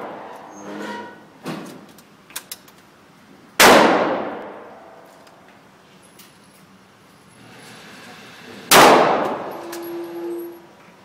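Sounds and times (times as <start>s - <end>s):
rifle shot echoing: 3.6s - 4.7s, 8.7s - 9.5s.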